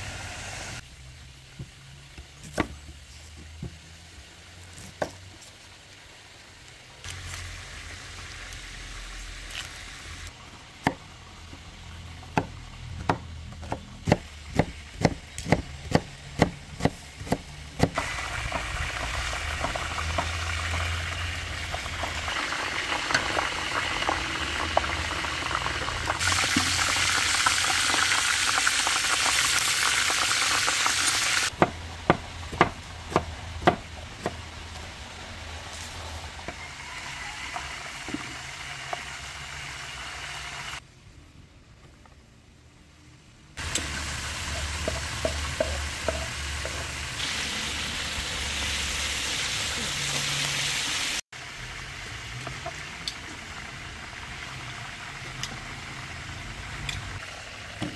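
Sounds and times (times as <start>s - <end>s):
chicken sizzling in a pot: 0.0s - 2.2s, 5.6s - 10.5s, 17.9s - 31.6s, 34.5s - 40.8s, 43.6s - 57.9s
knife chopping on wooden board: 12.4s - 18.0s, 31.6s - 34.4s.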